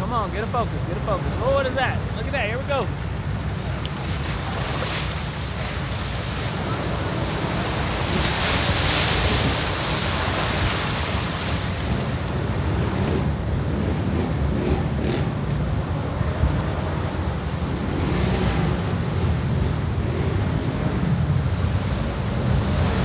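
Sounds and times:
water splashing: 0.0 - 13.4.

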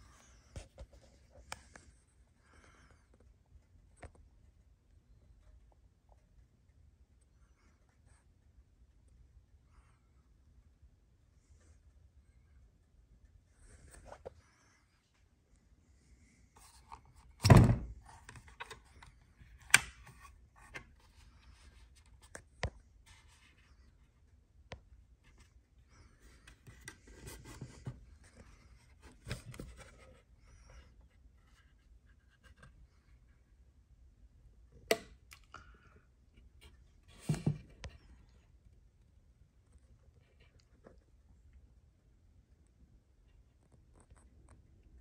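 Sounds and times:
heavy thunk: 17.4 - 17.9.

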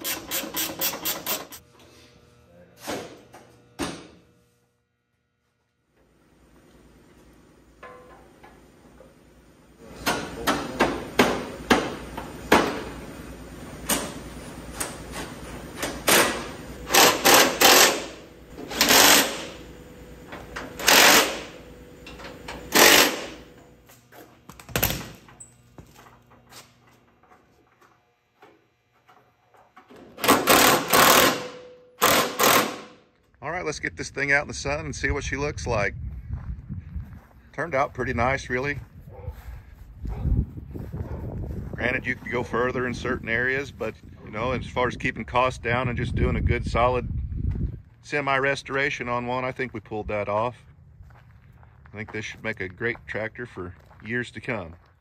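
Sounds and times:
impact driver bursts: 0.0 - 1.6, 15.9 - 19.7, 20.7 - 21.6, 22.5 - 23.6, 30.0 - 33.0.

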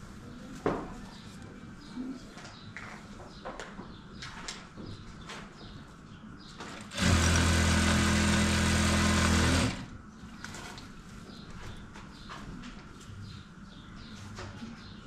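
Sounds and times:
sewing machine stitching: 6.8 - 9.9.

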